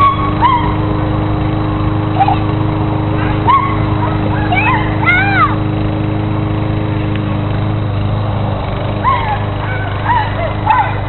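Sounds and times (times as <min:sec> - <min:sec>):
dog yipping: 0:00.0 - 0:00.8, 0:02.2 - 0:02.4, 0:03.4 - 0:04.9, 0:09.0 - 0:11.0
low motor drone: 0:00.0 - 0:11.0.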